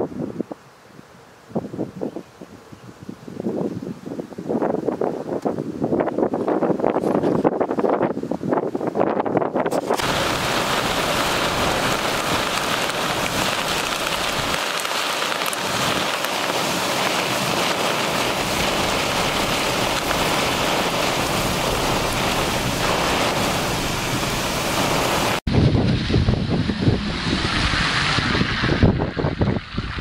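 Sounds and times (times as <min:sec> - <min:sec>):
heavy rain pouring: 0:09.8 - 0:28.8.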